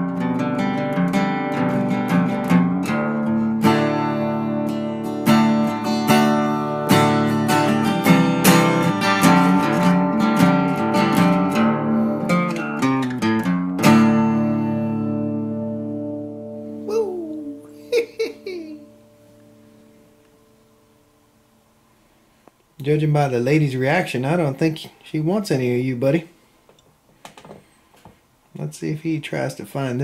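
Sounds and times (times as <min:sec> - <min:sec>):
acoustic guitar strumming: 0:00.0 - 0:21.7.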